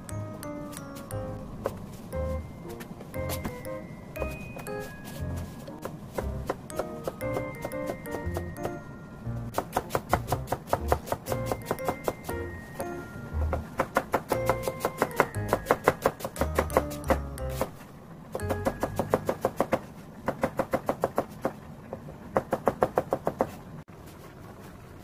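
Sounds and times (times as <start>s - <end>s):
knife chopping on plastic board: 9.5s - 12.2s, 13.5s - 17.3s.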